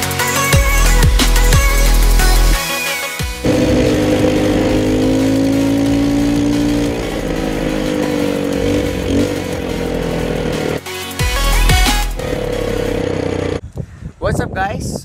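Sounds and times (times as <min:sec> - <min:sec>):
quad bike engine running: 0:03.4 - 0:13.6.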